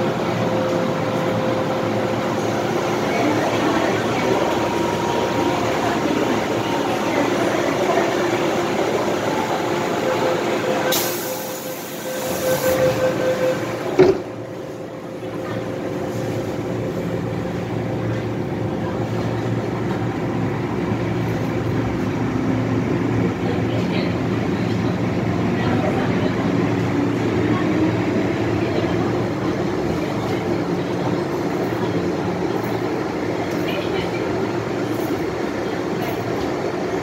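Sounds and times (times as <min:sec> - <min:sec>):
train running noise: 0:00.0 - 0:37.0
train doors thumping shut: 0:13.8 - 0:14.4.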